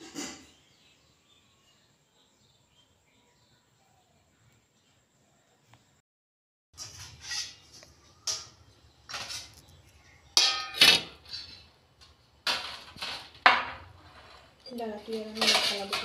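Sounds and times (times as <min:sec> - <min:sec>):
metal plates clattering: 0:10.4 - 0:11.7, 0:12.4 - 0:16.0.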